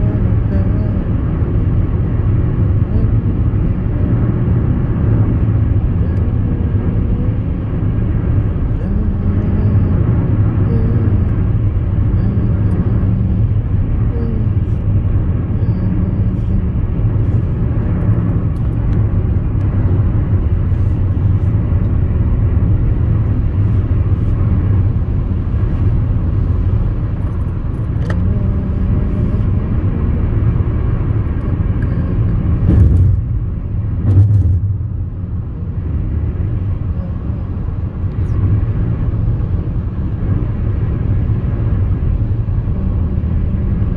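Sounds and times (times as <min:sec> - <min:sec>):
tyre and engine rumble: 0:00.0 - 0:43.9
car bumps: 0:32.6 - 0:33.4, 0:34.0 - 0:34.9.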